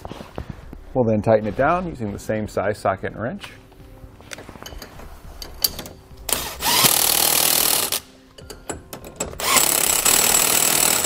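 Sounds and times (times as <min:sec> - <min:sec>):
impact wrench hammering: 0:05.4 - 0:11.0.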